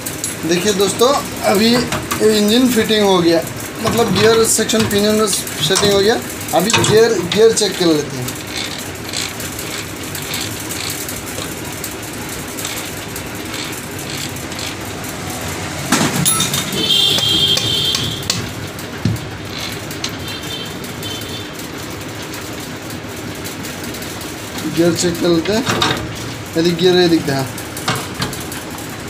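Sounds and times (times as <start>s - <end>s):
gearbox gears clicking and clinking: 0.0s - 29.0s
ringing metallic rattle: 3.7s - 21.3s
loud metal knock: 15.8s - 20.2s.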